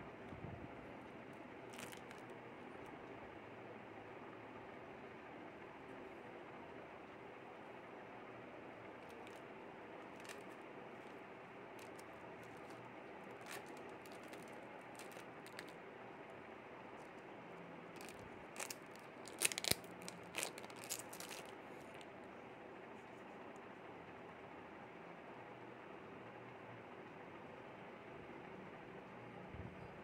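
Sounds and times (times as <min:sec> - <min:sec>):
plastic bag crinkling: 0:01.6 - 0:02.3, 0:09.0 - 0:09.4, 0:10.0 - 0:11.2, 0:11.8 - 0:15.8, 0:17.9 - 0:22.0.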